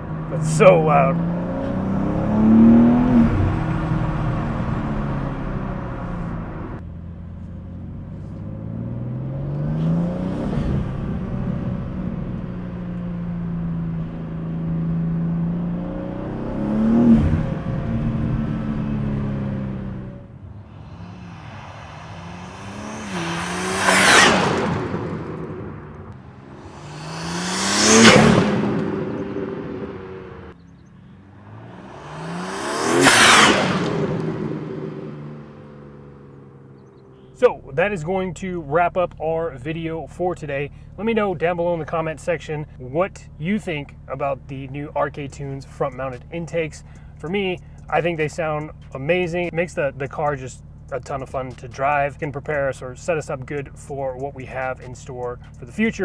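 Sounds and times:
car rushing past: 0.0s - 37.4s
car engine accelerating: 0.0s - 56.0s.

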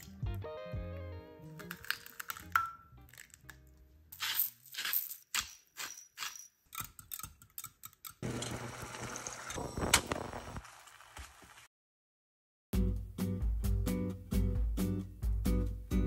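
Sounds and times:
egg sizzling in hot pan: 8.2s - 11.7s.

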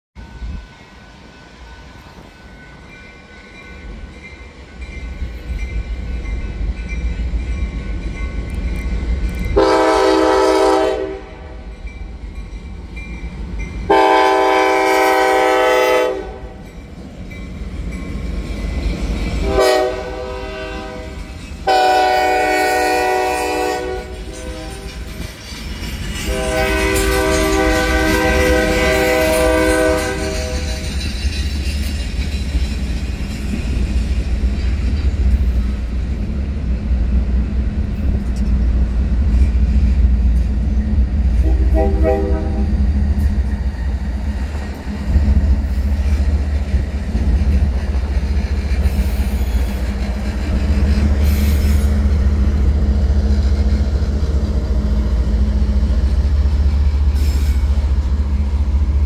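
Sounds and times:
diesel locomotive rumble: 2.1s - 59.0s
locomotive horn blasts: 9.6s - 11.6s, 13.9s - 16.6s, 19.4s - 24.9s, 26.3s - 30.8s, 41.4s - 42.7s.

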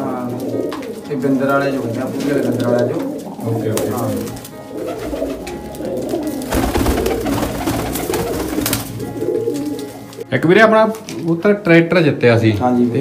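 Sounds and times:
pigeons cooing: 0.0s - 10.2s
pigeon wings flapping: 2.1s - 9.9s.

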